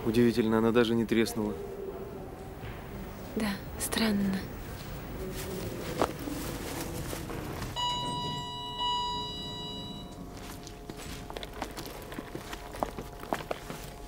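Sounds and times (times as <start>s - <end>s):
elevator chime: 7.8s - 10.4s.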